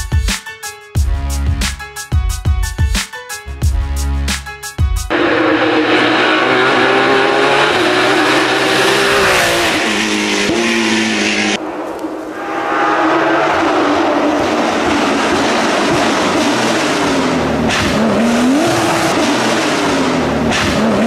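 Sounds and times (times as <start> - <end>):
race car engine passing at speed: 5.1 - 21.0.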